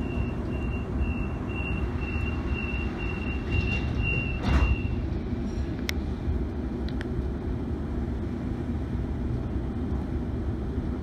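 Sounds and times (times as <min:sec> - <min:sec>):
train doors whooshing shut: 0:00.0 - 0:06.1
low train rumble: 0:00.0 - 0:11.0.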